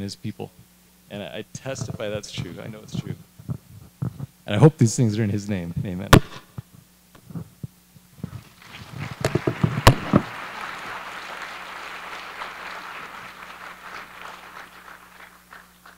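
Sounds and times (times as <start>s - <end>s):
audience applause: 8.6s - 15.9s
loud microphone bang: 9.4s - 10.3s.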